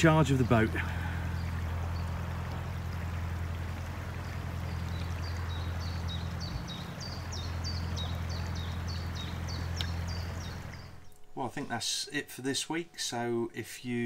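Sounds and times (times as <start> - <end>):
water rippling along boat bow: 0.0 - 11.8
steady low hum: 0.0 - 13.6
small bird chirping: 3.6 - 11.2.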